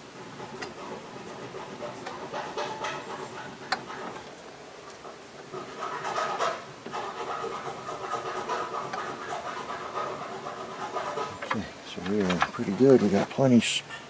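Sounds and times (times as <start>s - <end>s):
metal clicks and scrapes of bolt: 10.9s - 13.0s.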